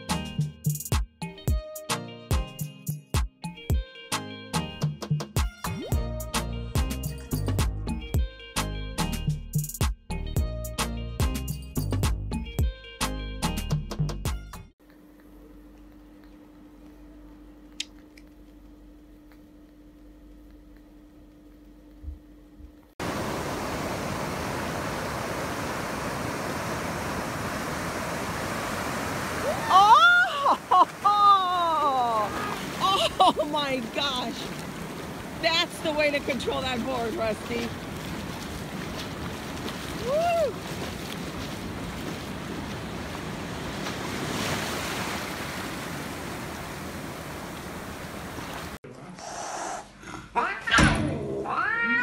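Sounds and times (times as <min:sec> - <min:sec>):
ocean surf breaking: 0:23.0 - 0:48.8.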